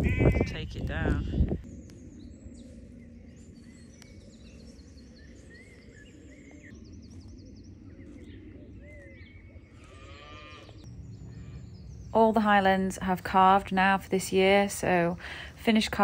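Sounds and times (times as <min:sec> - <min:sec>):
small birds chirping: 0:00.0 - 0:16.0
low background rumble: 0:10.6 - 0:16.0.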